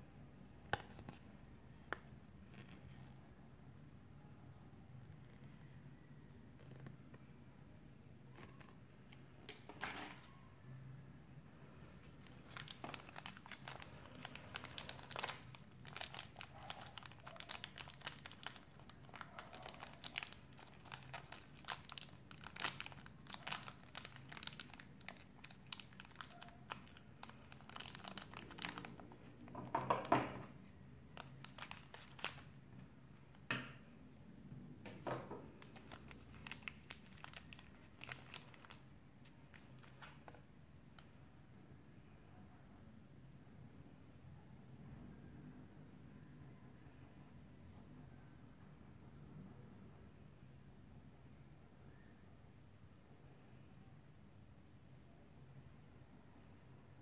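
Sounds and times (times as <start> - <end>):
wrapper crinkling: 12.1 - 29.2, 31.2 - 32.6, 34.9 - 40.4.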